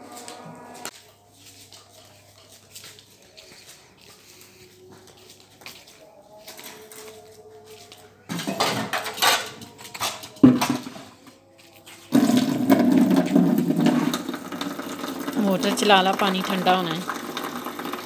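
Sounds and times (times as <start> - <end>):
steel cups and pots clattering: 8.3 - 11.1, 12.1 - 18.0
water running into container: 12.1 - 18.0.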